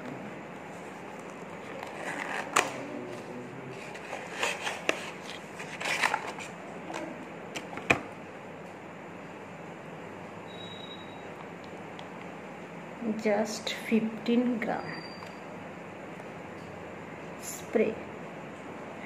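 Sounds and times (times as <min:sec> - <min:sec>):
packaging rustling and crinkling: 0:01.0 - 0:03.2, 0:03.8 - 0:06.5.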